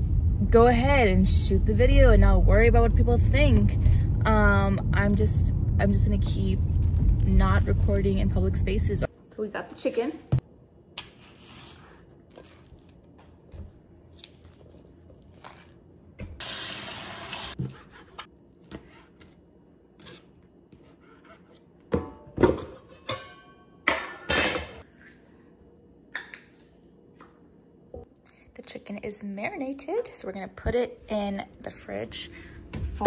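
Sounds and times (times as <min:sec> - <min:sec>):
dishes and utensils clattering: 0:22.0 - 0:24.9.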